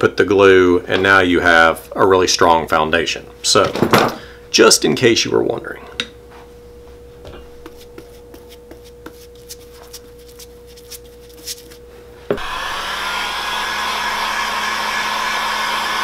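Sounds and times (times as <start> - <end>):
heat gun blowing hiss: 12.3 - 16.0.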